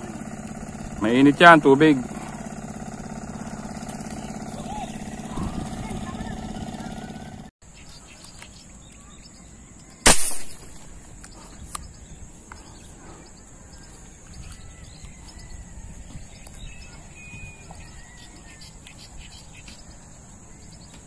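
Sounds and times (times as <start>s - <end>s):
faint bird chirps: 7.6s - 21.0s
sharp shot: 10.0s - 11.0s.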